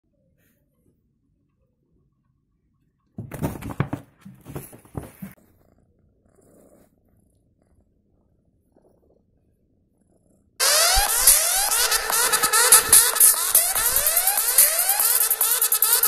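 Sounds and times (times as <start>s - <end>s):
cat purring: 5.0s - 11.1s.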